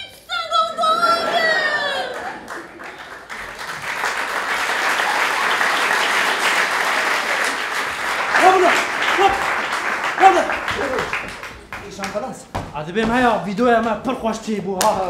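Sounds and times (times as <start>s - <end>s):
audience applauding: 1.3s - 12.4s.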